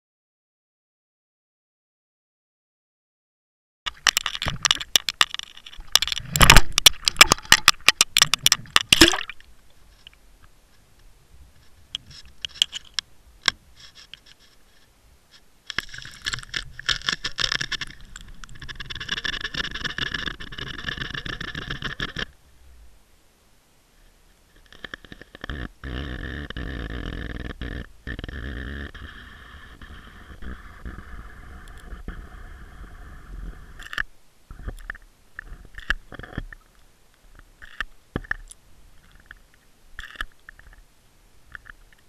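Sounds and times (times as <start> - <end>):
scattered clicks: 3.9 - 9.4.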